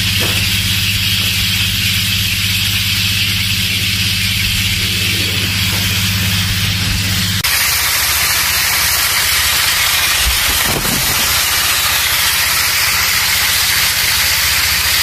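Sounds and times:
strong low hum: 0.0s - 8.8s
small engine running: 0.0s - 15.0s
hose water pouring onto soil: 7.4s - 15.0s.

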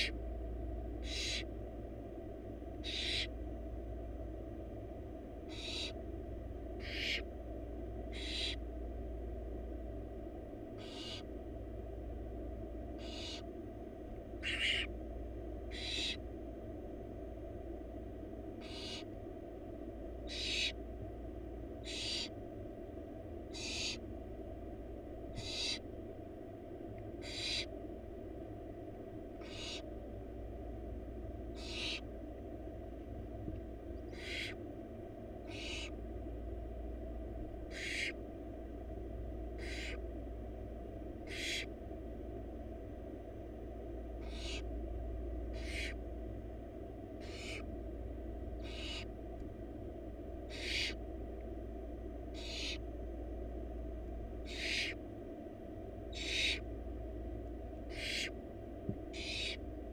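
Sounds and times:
steady low hum: 0.0s - 59.9s
owl nestlings hissing: 1.0s - 1.5s, 2.8s - 3.4s, 5.5s - 6.0s, 6.8s - 7.3s, 8.1s - 8.6s, 10.8s - 11.3s, 13.0s - 13.5s, 14.4s - 14.9s, 15.7s - 16.2s, 18.6s - 19.1s, 20.2s - 20.8s, 21.8s - 22.4s, 23.5s - 24.0s, 25.3s - 25.8s, 27.2s - 27.7s, 29.4s - 29.9s, 31.6s - 32.1s, 34.1s - 34.6s, 35.4s - 36.0s, 37.7s - 38.2s, 39.6s - 40.0s, 41.2s - 41.7s, 44.2s - 44.7s, 45.5s - 46.0s, 47.2s - 47.7s, 48.6s - 49.1s, 50.5s - 51.0s, 52.3s - 52.8s, 54.4s - 55.0s, 56.1s - 56.7s, 57.8s - 58.4s, 59.0s - 59.6s.

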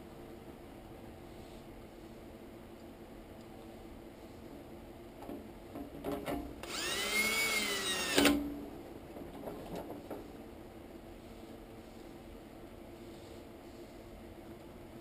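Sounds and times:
cordless drill motor whining: 6.6s - 8.4s
drill stopping click: 6.6s - 8.4s.

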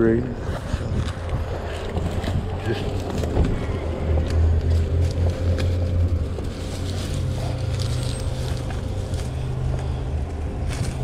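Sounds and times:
steady low hum: 0.0s - 11.0s
plastic bag rustling: 4.8s - 9.7s.

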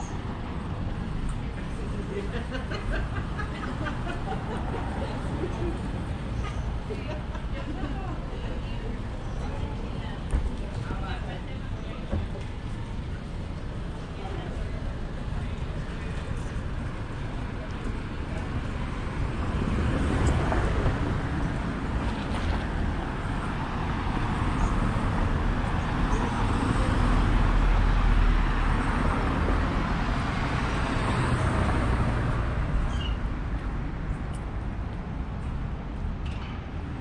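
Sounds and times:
low traffic rumble: 0.0s - 37.0s
cars passing close by: 12.9s - 35.3s.

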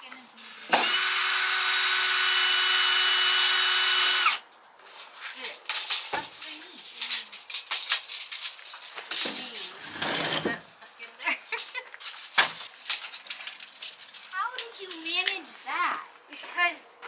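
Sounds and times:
power drill whining: 0.4s - 4.4s.

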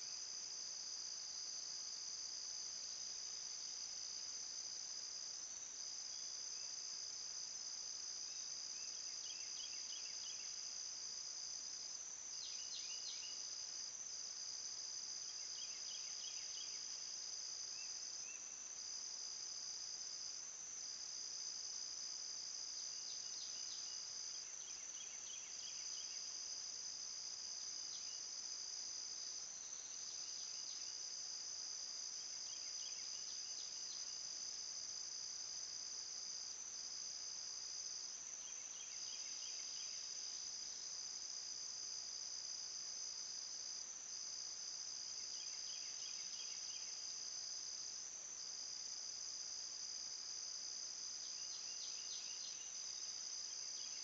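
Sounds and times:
crickets trilling: 32.0s - 35.7s, 36.4s - 54.0s.

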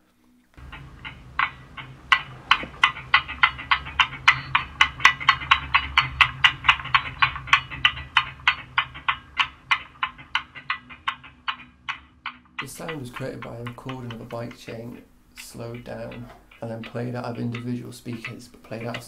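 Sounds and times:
bicycle chain clicking: 0.6s - 19.0s
low hum: 0.6s - 19.0s.

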